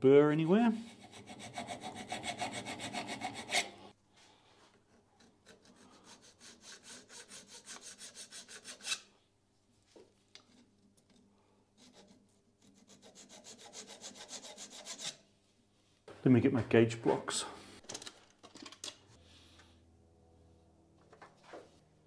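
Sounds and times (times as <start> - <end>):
file scraping metal: 0.7 - 3.9, 4.9 - 9.1, 11.8 - 15.2.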